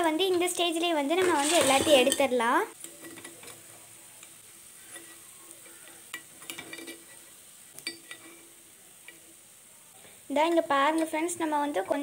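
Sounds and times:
faint sizzle of hot oil: 0:00.0 - 0:12.0
spoon scraping and clicking on pan: 0:01.2 - 0:09.3.

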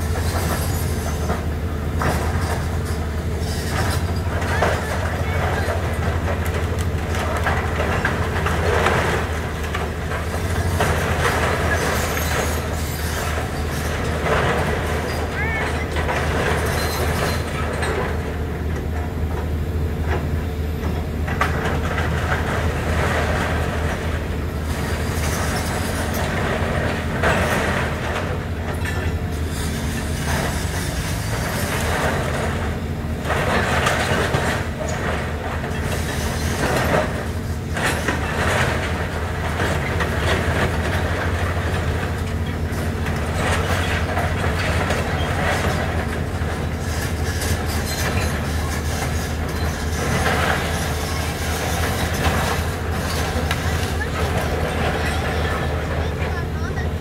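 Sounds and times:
excavator diesel engine running: 0:00.0 - 0:57.0
metal clanking and screeching: 0:09.7 - 0:18.2, 0:24.7 - 0:56.8.

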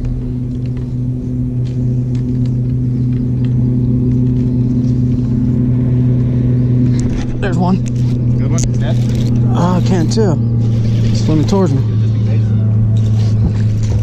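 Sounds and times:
boat motor humming: 0:00.0 - 0:14.0.

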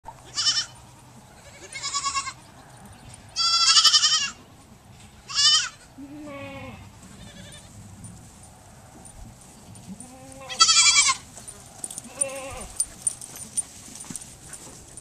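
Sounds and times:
goat kids bleating: 0:00.2 - 0:02.5, 0:03.2 - 0:07.8, 0:09.9 - 0:11.4, 0:12.0 - 0:12.8.

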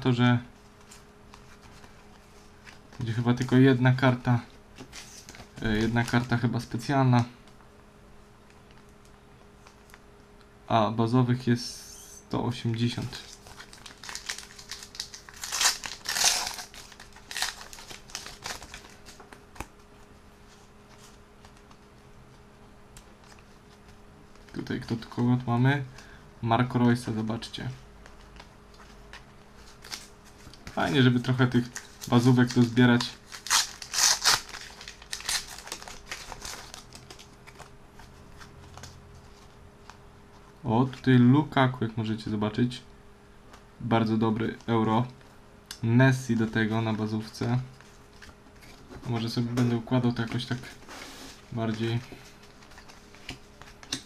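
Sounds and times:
cards rustling: 0:12.9 - 0:22.0, 0:28.0 - 0:40.0, 0:46.3 - 0:54.0
foil packet crinkling: 0:13.1 - 0:19.4, 0:29.6 - 0:37.8.

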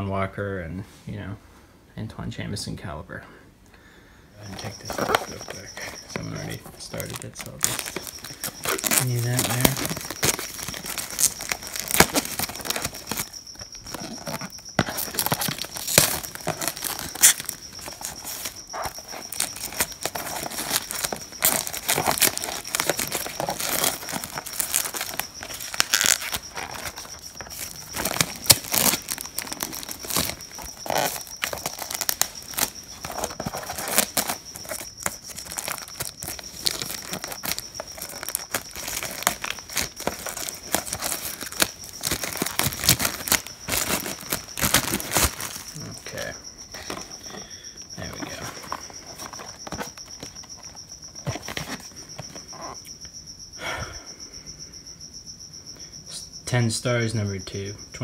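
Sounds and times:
cricket trilling: 0:01.2 - 0:58.0
plastic wrap crinkling and tearing: 0:04.5 - 0:46.0, 0:48.1 - 0:52.3.

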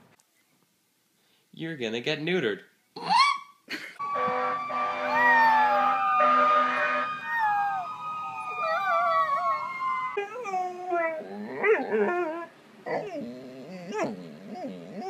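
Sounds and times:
puppy howling: 0:04.9 - 0:15.0
dog whining: 0:08.6 - 0:15.0.

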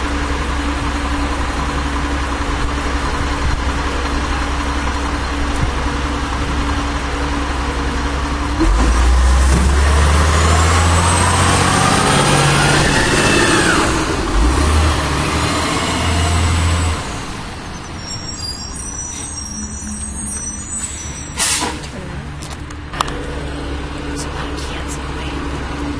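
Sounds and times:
garbage truck diesel engine revving: 0:00.0 - 0:25.9.

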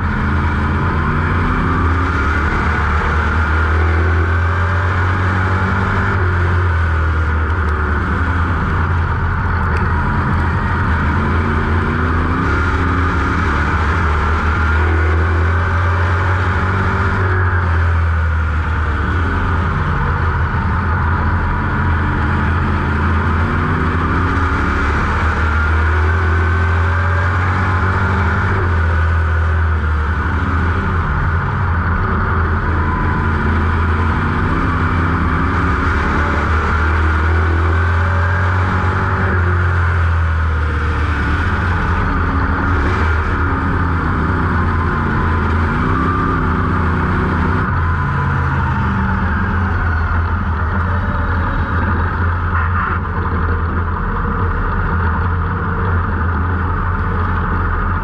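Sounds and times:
race car engine running: 0:00.0 - 0:58.0.

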